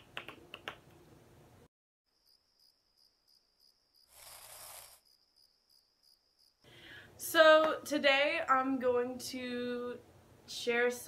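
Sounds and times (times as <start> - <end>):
finger snap: 0.0 - 0.8
cricket chirping: 2.1 - 6.7.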